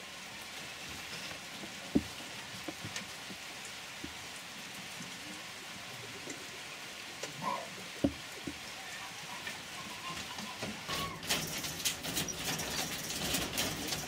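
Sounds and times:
steady rain-like hiss: 0:00.0 - 0:14.0
faint short squeaks: 0:09.7 - 0:13.5
knocks and rattles: 0:10.2 - 0:14.0.

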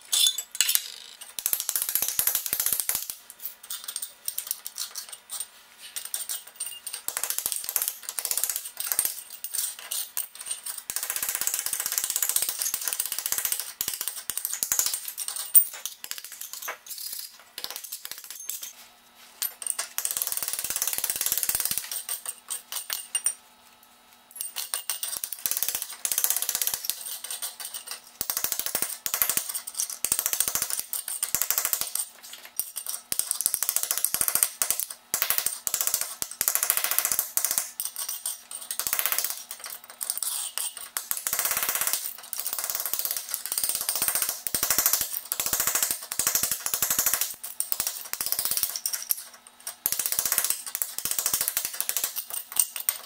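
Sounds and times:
tile fragments clinking: 0:00.1 - 0:01.4.

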